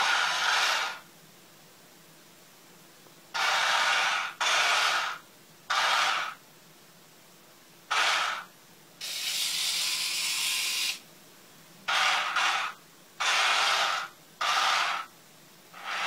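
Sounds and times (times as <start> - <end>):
toy tank electric motors whirring: 0.0 - 1.0, 3.4 - 6.4, 7.9 - 11.0, 11.9 - 15.1, 15.8 - 16.0.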